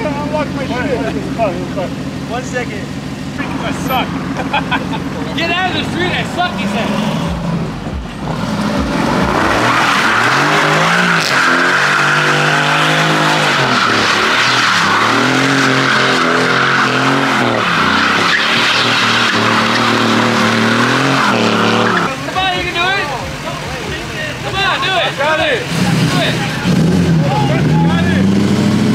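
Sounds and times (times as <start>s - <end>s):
car engine revving high: 0.0s - 23.0s, 23.9s - 28.9s
tyres squealing: 9.2s - 28.2s.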